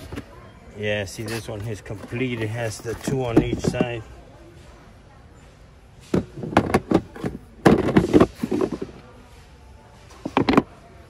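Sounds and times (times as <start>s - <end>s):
plastic toolbox clacks and knocks: 1.1s - 4.1s, 6.0s - 9.0s, 10.1s - 10.8s.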